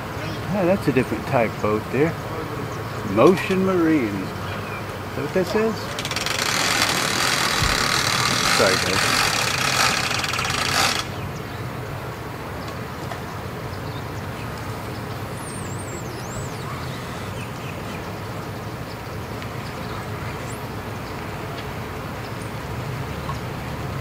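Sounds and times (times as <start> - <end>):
engine idling: 5.8 - 11.2.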